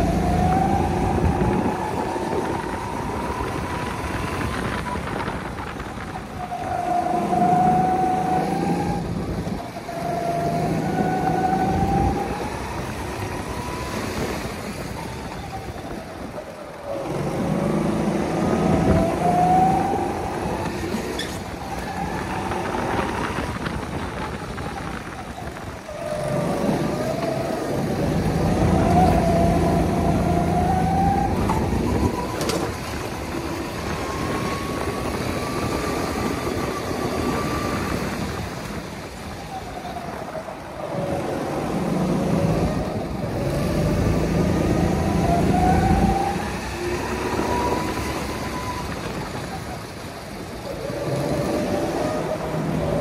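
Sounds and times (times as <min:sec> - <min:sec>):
go-kart engine: 0:00.0 - 0:53.0.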